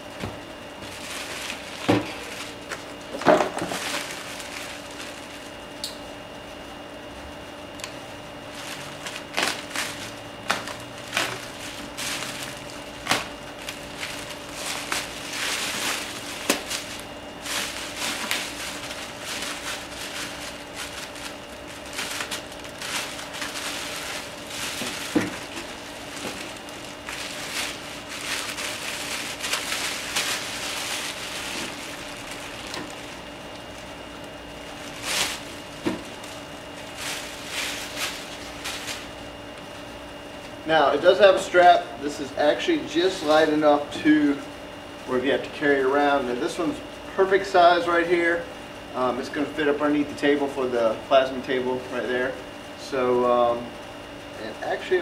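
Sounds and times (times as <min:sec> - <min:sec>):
plastic bag rustling and crinkling: 0:00.3 - 0:05.8, 0:08.5 - 0:39.8.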